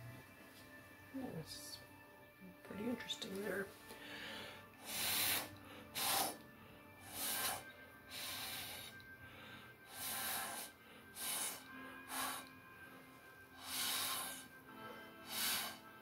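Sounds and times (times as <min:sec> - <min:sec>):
faint background music: 0:00.0 - 0:16.0
sharp puffs of breath: 0:03.9 - 0:12.6, 0:13.6 - 0:16.0.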